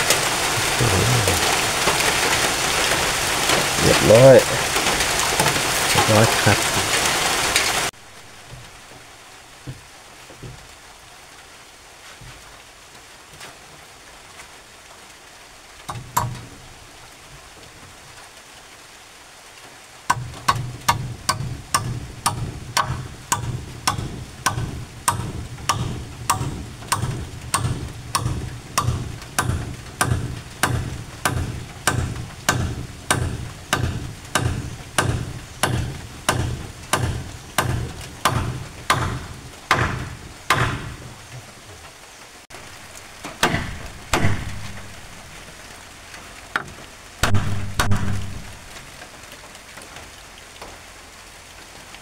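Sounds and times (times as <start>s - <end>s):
hammer striking nail into wood: 15.9s - 16.5s, 20.1s - 41.1s, 43.4s - 45.1s, 47.2s - 48.6s.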